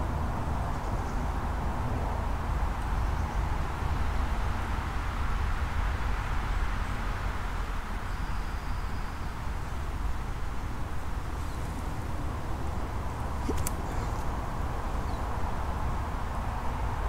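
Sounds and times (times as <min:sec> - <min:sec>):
sharp click: 0:13.4 - 0:14.2.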